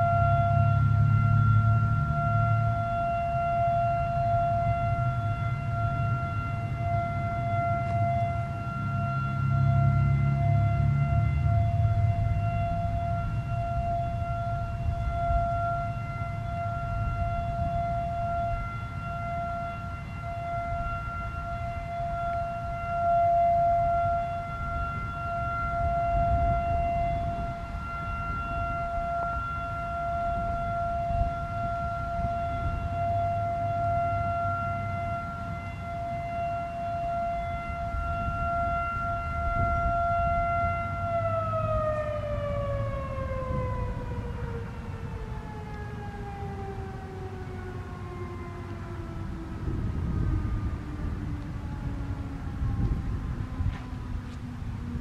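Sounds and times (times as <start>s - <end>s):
warning siren winding down: 0.0s - 55.0s.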